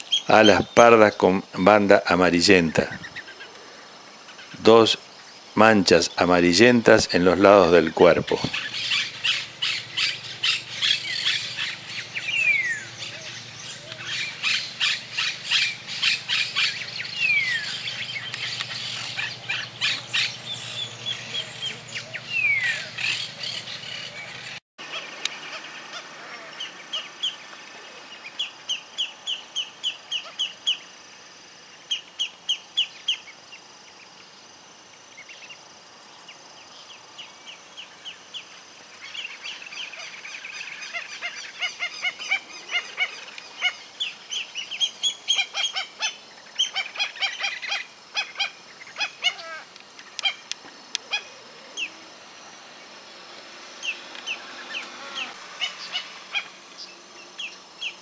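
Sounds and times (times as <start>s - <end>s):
ducklings peeping: 7.5s - 30.8s.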